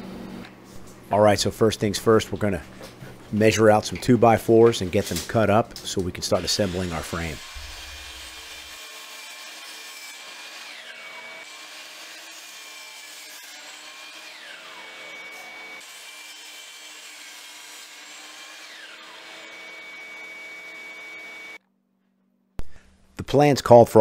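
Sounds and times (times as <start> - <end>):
shop vacuum running: 0.0 - 21.6
miter saw cutting wood: 4.5 - 21.6.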